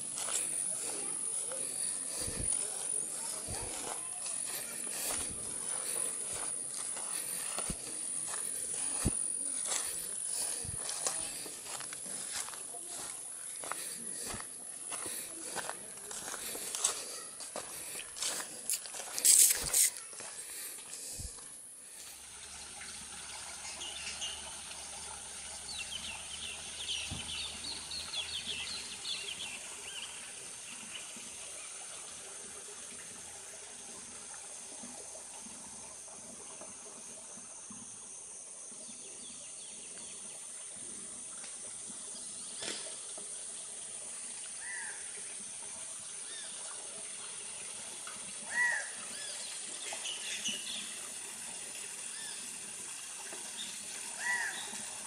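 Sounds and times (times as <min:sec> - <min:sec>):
birds chirping: 0:00.0 - 0:21.4
water flowing: 0:00.0 - 0:55.0.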